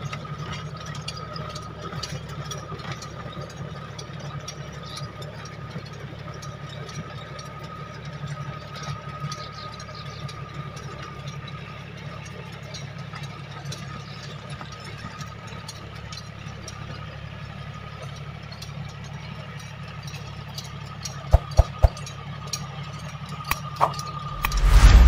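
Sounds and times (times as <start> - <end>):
tractor diesel engine running: 0.0 - 25.0
sharp thumps: 21.3 - 22.0.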